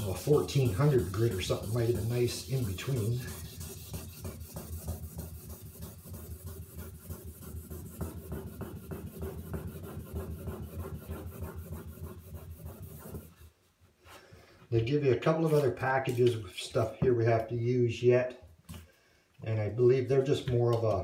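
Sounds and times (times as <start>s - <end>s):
sandpaper rubbing back and forth: 0.0s - 13.5s.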